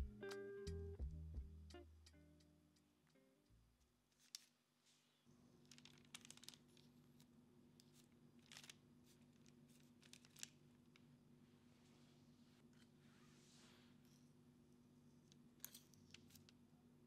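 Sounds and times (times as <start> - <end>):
metal spoons clicking and scraping: 15.6 - 16.5.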